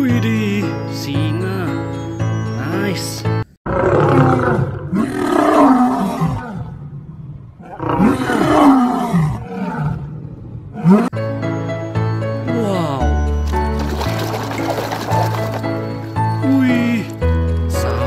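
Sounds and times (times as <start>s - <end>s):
lion roaring: 3.7s - 11.2s.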